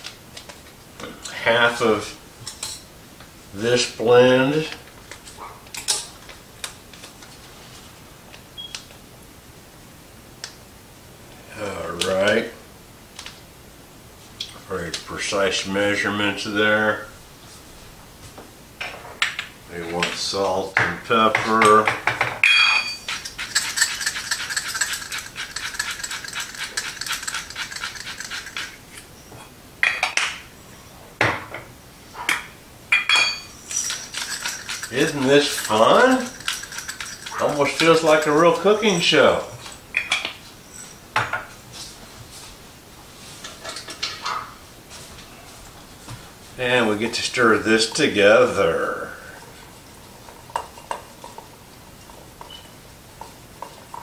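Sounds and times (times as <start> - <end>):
kitchenware clattering: 20.8 - 28.8, 29.8 - 30.4, 31.2 - 41.6, 43.4 - 44.6, 47.2 - 54.0
salt and pepper rattling clicks: 23.1 - 28.8, 33.7 - 38.2.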